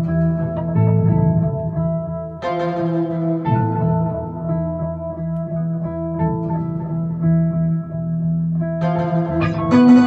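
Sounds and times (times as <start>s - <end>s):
held low note: 0.0s - 4.4s
plucked notes: 0.0s - 10.0s.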